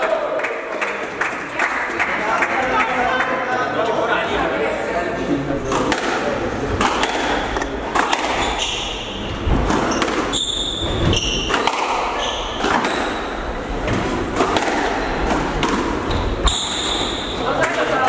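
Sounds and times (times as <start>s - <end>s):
murmur of spectators: 0.0s - 18.0s
ball smacking rackets and walls: 5.7s - 18.0s
shoes squeaking on wooden floor: 7.6s - 14.0s, 16.0s - 17.4s.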